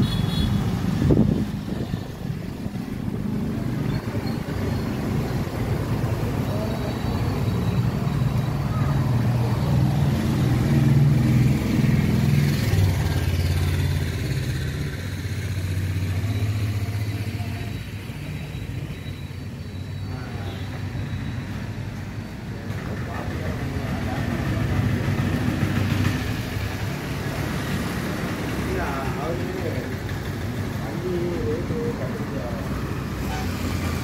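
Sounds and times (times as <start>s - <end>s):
diesel engine idling: 22.3s - 34.0s.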